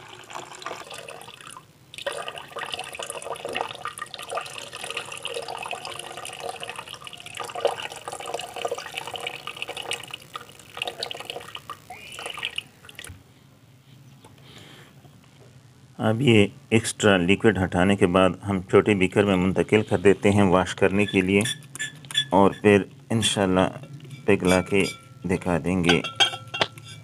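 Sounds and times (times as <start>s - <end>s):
liquid pouring into plastic bucket: 0.0s - 13.1s.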